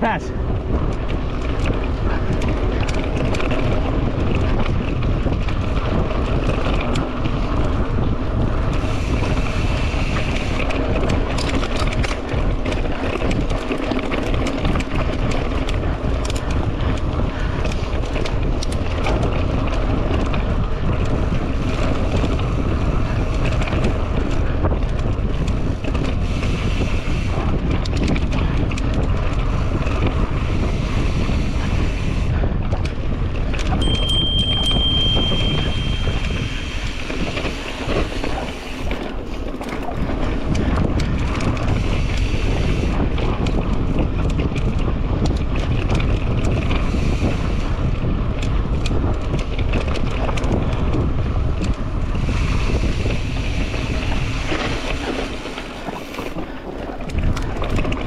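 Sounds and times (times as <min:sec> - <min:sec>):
bike clattering and rattling: 0:00.0 - 0:58.0
wind buffeting microphone: 0:00.0 - 0:58.0.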